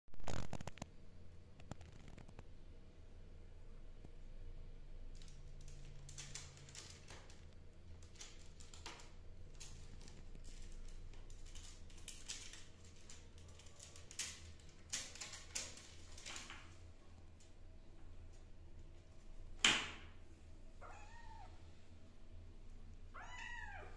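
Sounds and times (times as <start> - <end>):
kitten claws scratching plastic: 0.2 - 0.8, 1.6 - 2.4, 5.2 - 16.8.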